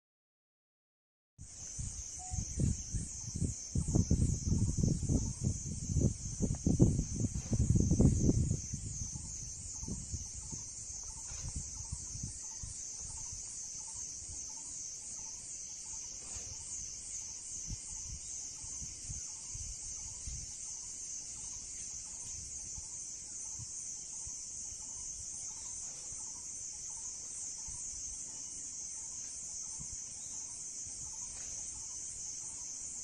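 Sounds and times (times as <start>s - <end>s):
high-pitched insect chorus: 1.4s - 33.0s
low rumbling on microphone: 2.4s - 12.4s.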